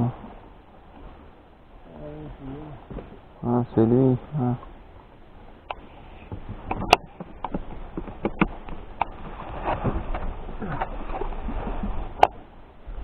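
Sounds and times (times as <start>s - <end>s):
low steady rumble: 0.0s - 13.0s
sharp clicks and knocks: 5.7s - 11.2s.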